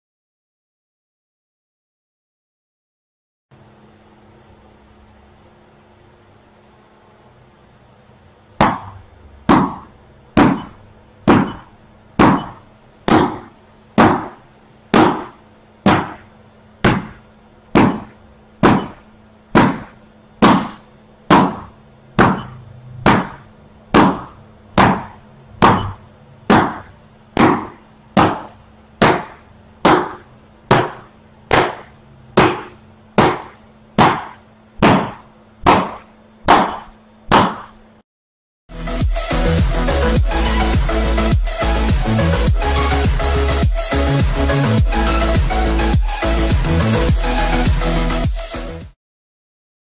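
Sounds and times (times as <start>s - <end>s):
sharp hits on body protector: 8.6s - 10.7s, 11.3s - 19.0s, 19.6s - 37.8s.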